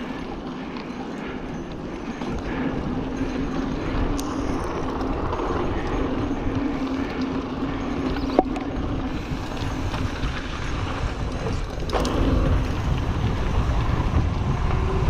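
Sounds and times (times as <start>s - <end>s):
bike tyres rolling on dirt: 0.0s - 15.0s
wind buffeting microphone: 0.0s - 15.0s.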